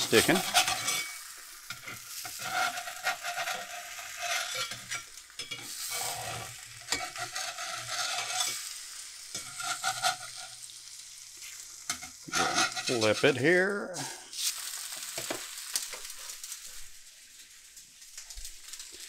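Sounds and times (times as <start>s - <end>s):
metal spatula scraping pan: 0.0s - 10.7s, 11.9s - 13.5s
egg sizzling in grease: 0.0s - 19.0s.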